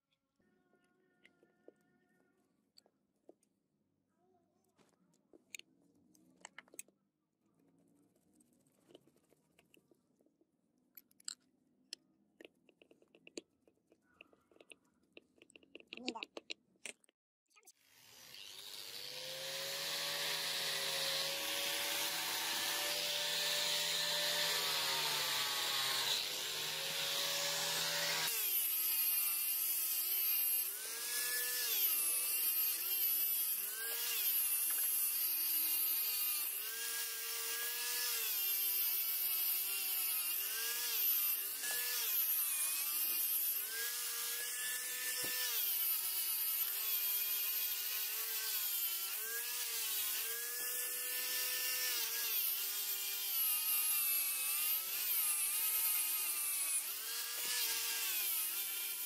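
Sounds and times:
angle grinder motor whine: 17.9s - 59.0s.

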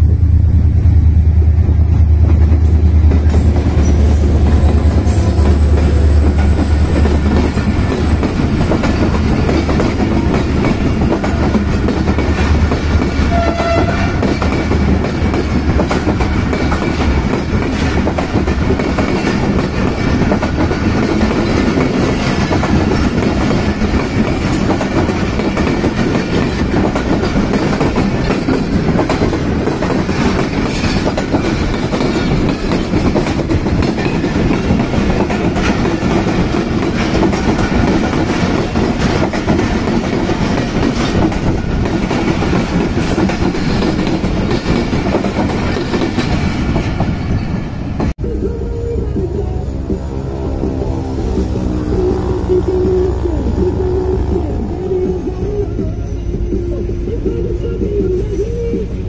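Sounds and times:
deep train rumble: 0.0s - 59.0s
train wheels clattering over rail joints: 2.2s - 48.1s.

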